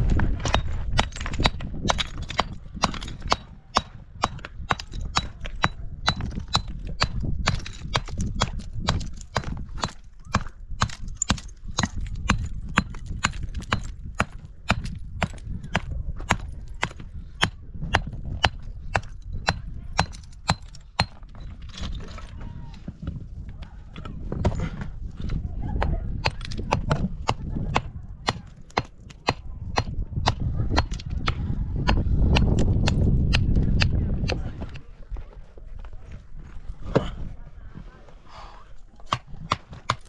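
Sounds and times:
steady low rumble: 0:00.0 - 0:21.4.

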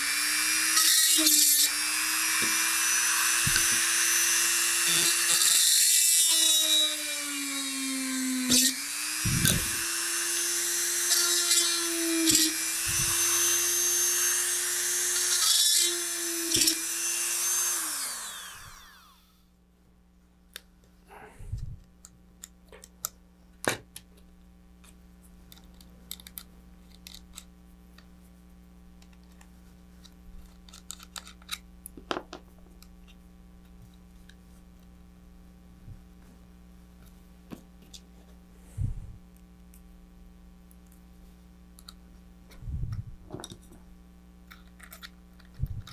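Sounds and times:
power drill whining: 0:00.0 - 0:19.4
small parts clicking: 0:24.8 - 0:27.5, 0:30.0 - 0:31.6, 0:44.5 - 0:45.9.

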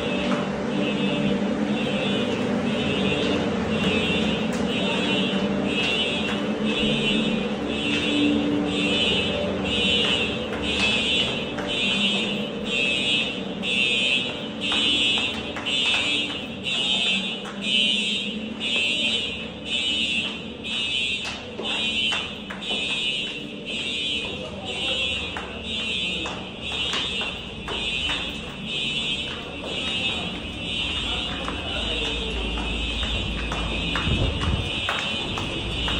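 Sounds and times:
fire alarm wailing: 0:00.0 - 0:35.9
shoes tapping on concrete stairs: 0:19.8 - 0:35.9.

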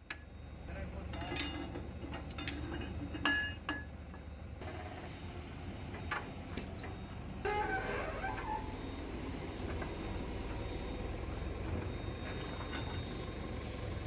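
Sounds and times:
low engine rumble: 0:00.0 - 0:14.0
steel bar clinking on steel: 0:01.2 - 0:03.9.

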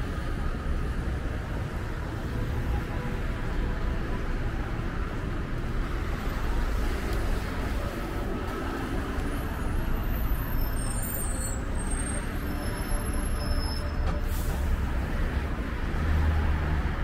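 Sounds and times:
cars driving past: 0:14.0 - 0:17.0.

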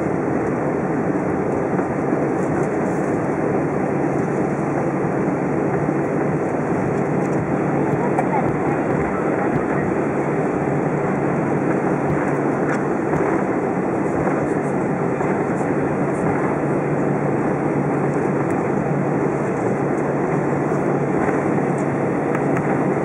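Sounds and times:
constant low hum: 0:00.0 - 0:23.0
jet engines running: 0:00.0 - 0:23.0
airframe rolling rumble: 0:05.7 - 0:16.6.

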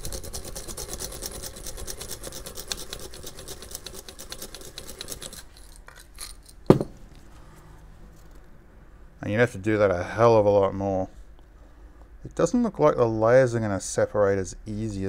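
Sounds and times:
sharp knock: 0:06.7 - 0:07.0.

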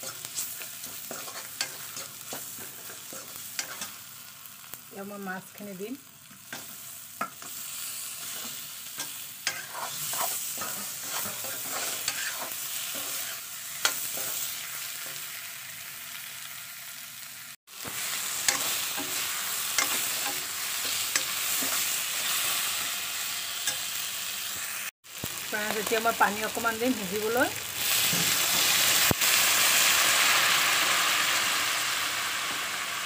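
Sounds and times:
metal spatula scraping pan: 0:00.0 - 0:04.0, 0:08.2 - 0:14.4
food sizzling in oil: 0:00.0 - 0:33.0.

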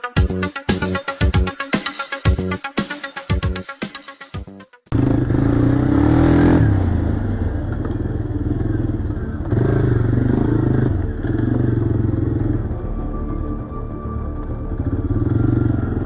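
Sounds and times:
atv engine revving: 0:04.9 - 0:12.6, 0:14.8 - 0:16.0.

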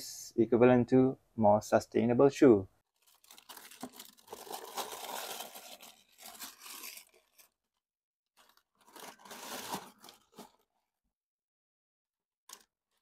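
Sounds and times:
paper packaging rustling: 0:02.9 - 0:07.7, 0:08.4 - 0:10.7, 0:12.5 - 0:13.0.

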